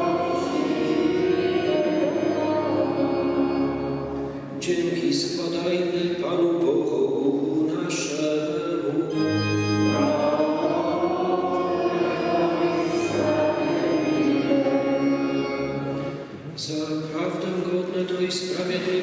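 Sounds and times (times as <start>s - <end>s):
voices singing a chant: 0.0s - 4.2s, 8.9s - 16.2s
church organ chords: 0.0s - 17.7s.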